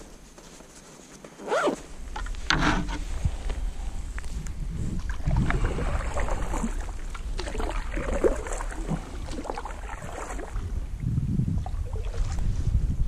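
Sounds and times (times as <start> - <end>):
paddle strokes splashing in water: 5.0 - 10.8.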